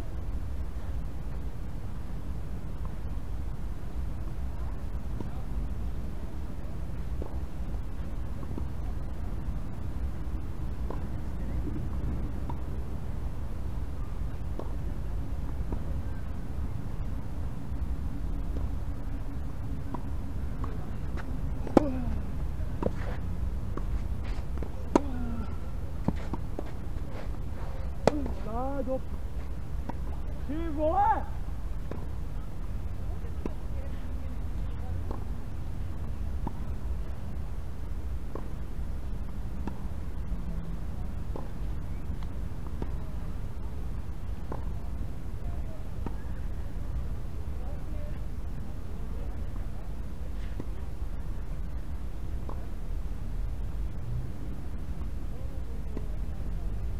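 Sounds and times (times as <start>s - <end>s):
low outdoor rumble: 0.0s - 56.9s
tennis balls struck and bouncing: 14.3s - 16.0s, 18.4s - 28.9s, 35.0s - 35.3s, 41.2s - 43.1s
tennis ball knocks: 28.0s - 28.4s.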